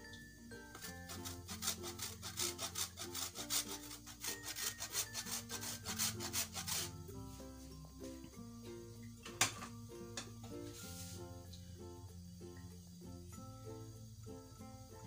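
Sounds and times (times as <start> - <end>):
cheese scraping on a grater: 0.8 - 7.0.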